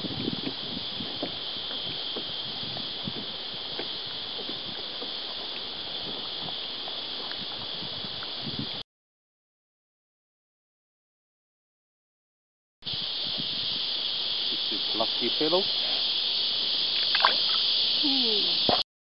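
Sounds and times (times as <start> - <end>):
steady high-pitched hiss: 0.0 - 8.8, 12.8 - 18.8.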